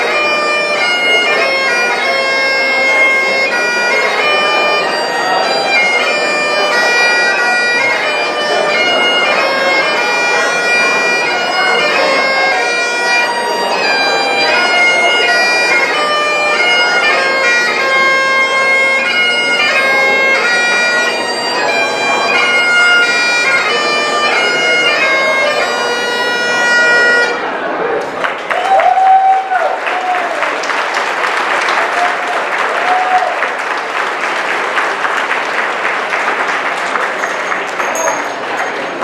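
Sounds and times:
bagpipe melody: 0.0 - 27.6
bagpipe drones humming: 0.0 - 27.8.

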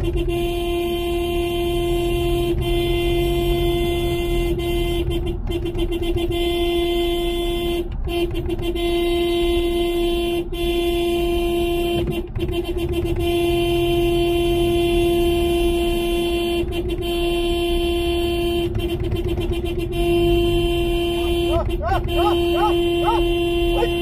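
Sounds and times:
car horn blasts: 0.0 - 24.0
low rumble of moving car: 0.0 - 24.0.

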